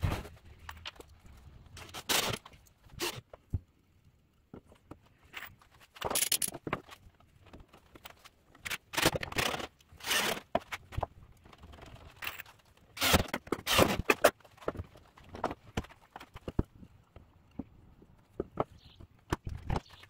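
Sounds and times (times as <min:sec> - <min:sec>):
cordless drill driving screws: 0:10.0 - 0:10.4.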